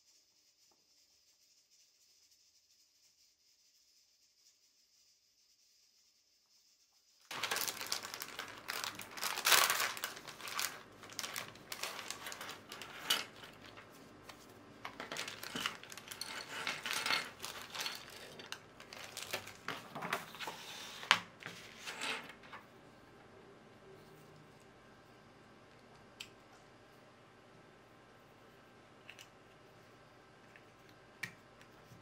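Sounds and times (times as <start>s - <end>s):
plastic packaging crinkling: 7.3s - 20.5s.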